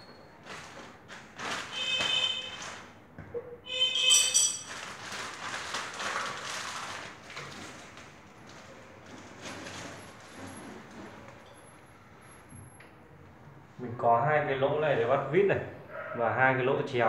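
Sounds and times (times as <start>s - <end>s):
high-pitched metallic squeals: 3.7s - 4.7s.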